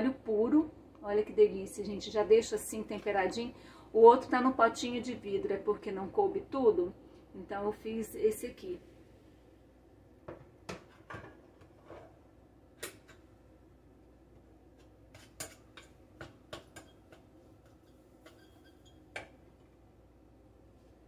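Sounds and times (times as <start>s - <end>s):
spatula scraping in pot: 16.8s - 19.1s.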